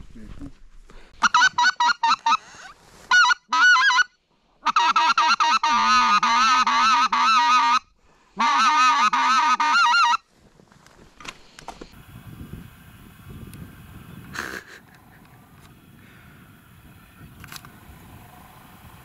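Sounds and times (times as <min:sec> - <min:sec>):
geese honking and cackling: 0:01.2 - 0:10.2.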